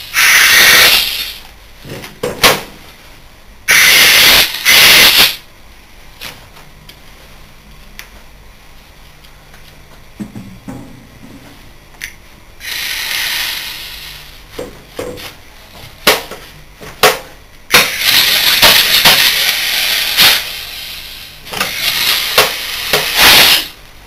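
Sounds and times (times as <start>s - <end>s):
compressed air hissing in bursts: 0.0s - 1.5s, 3.7s - 5.5s, 12.6s - 14.5s, 17.7s - 23.8s.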